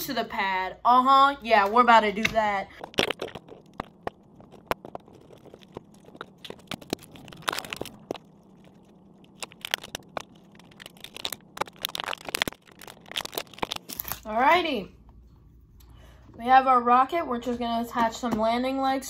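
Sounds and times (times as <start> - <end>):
plastic bottle crinkling: 2.7 - 14.4.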